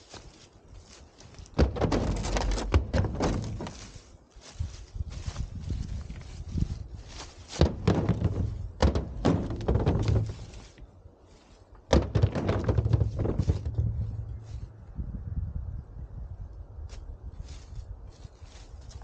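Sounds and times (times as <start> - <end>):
footsteps crunching through dry leaves: 0.0 - 1.6, 3.3 - 8.8, 9.8 - 11.8, 16.9 - 19.0
heavy thunks from truck tailgate: 1.6 - 4.0, 7.5 - 10.6, 11.9 - 14.4.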